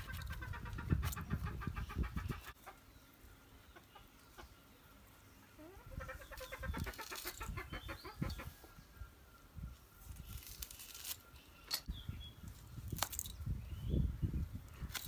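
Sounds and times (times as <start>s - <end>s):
hens clucking: 0.0s - 8.8s.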